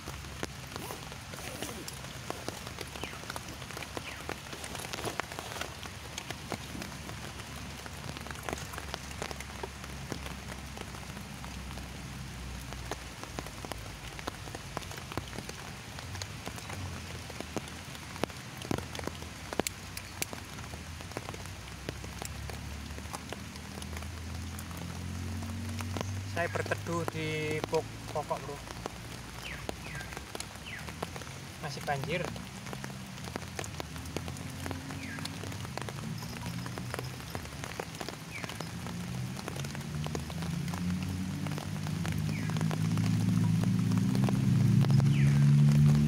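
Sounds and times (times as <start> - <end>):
drizzle on ground and foliage: 0.0 - 46.0.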